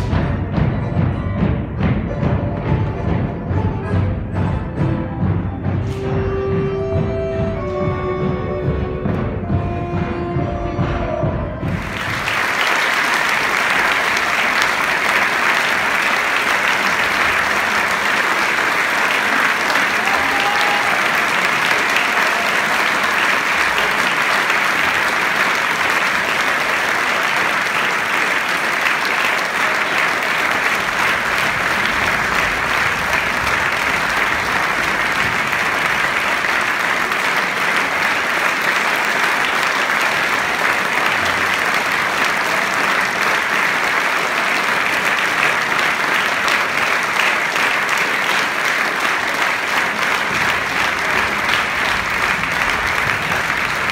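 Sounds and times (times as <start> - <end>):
large audience applauding: 11.5 - 53.9.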